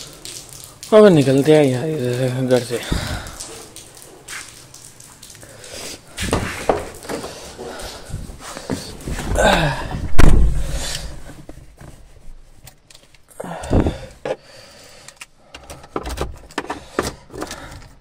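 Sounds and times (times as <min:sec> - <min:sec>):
car door slamming: 0:10.1 - 0:10.7.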